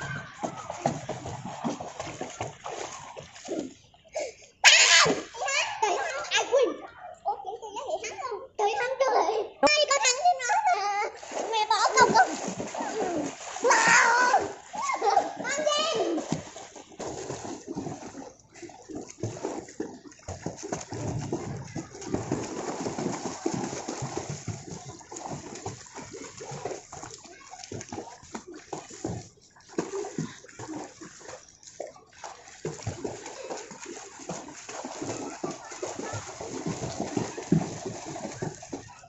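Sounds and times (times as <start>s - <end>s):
pool water splashing: 0.0s - 39.0s.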